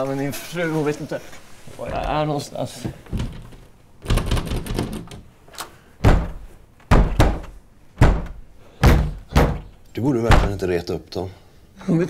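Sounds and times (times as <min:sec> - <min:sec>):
fist pounding on a door: 0:04.0 - 0:05.2, 0:06.0 - 0:10.6.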